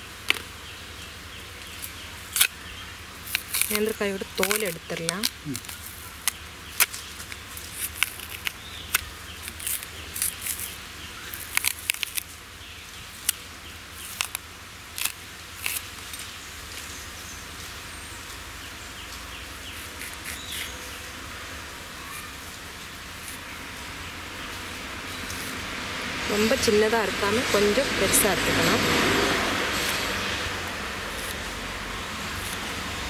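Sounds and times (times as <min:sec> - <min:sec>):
low background hum: 0:00.0 - 0:33.0
plantain peel snapping: 0:01.8 - 0:02.6, 0:03.2 - 0:12.3, 0:14.0 - 0:14.4.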